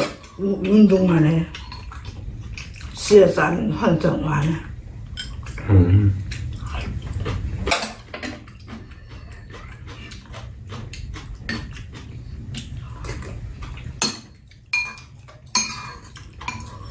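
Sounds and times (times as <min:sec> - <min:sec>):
metal utensils clinking on bowls: 0:05.1 - 0:05.6, 0:07.7 - 0:10.5, 0:13.7 - 0:16.9.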